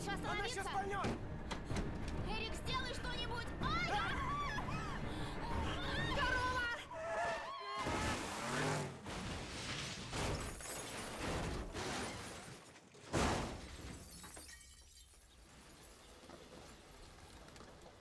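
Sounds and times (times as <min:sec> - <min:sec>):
heavy car crashes: 0:07.8 - 0:14.3
glass breaking: 0:09.3 - 0:15.4.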